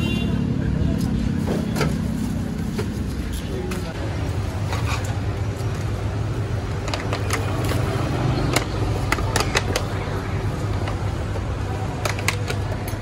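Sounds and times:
low rumble of traffic: 0.0s - 13.0s
clicks and taps of containers: 8.4s - 10.0s, 11.9s - 13.0s.

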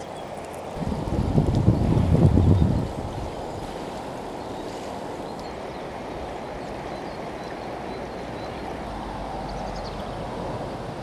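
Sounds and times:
fast-flowing river rushing: 0.0s - 11.0s.

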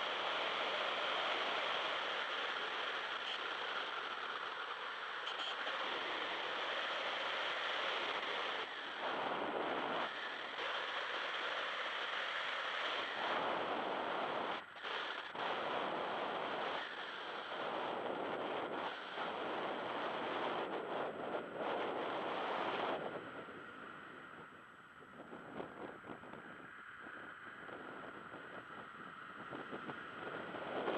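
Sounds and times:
wind rushing over microphone: 7.8s - 11.1s, 12.9s - 30.9s.

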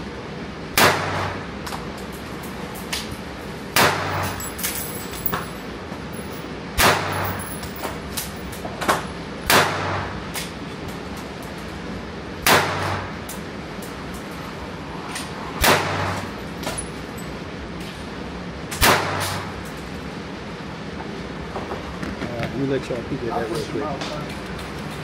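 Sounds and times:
loud gunshots indoors: 0.7s - 1.5s, 3.7s - 4.4s, 6.8s - 7.4s, 9.4s - 10.2s, 12.4s - 13.2s, 15.6s - 16.3s, 18.8s - 19.5s.

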